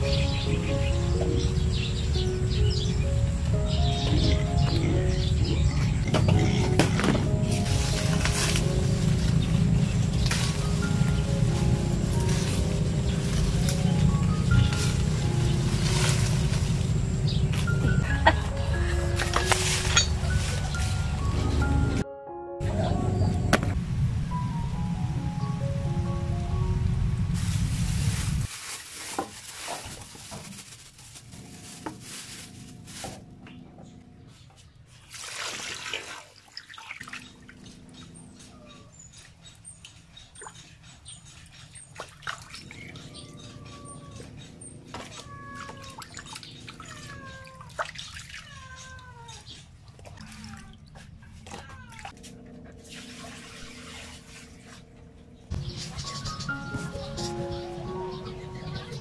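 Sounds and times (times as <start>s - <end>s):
cats meowing: 42.9s - 52.2s.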